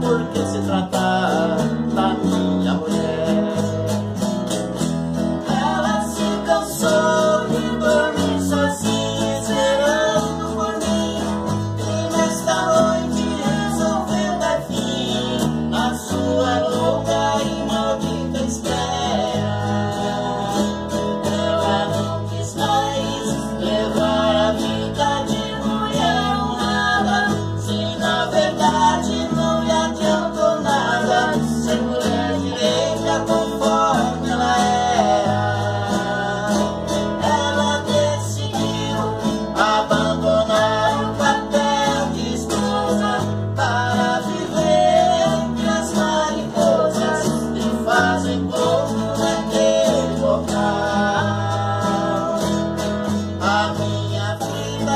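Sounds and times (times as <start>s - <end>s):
man and girl singing duet: 0.0s - 4.4s, 5.4s - 54.9s
acoustic guitars strummed: 0.0s - 54.9s
electric bass line: 0.0s - 54.9s.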